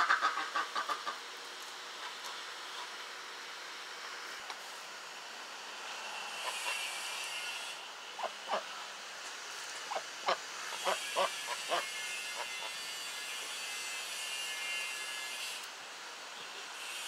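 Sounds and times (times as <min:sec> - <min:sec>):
ducks quacking: 0:00.0 - 0:01.2, 0:08.2 - 0:08.7.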